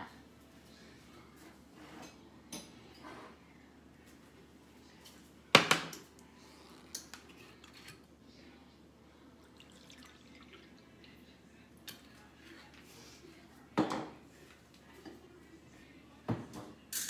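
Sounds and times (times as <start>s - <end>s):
wine dribbling into a bowl: 9.4s - 11.4s.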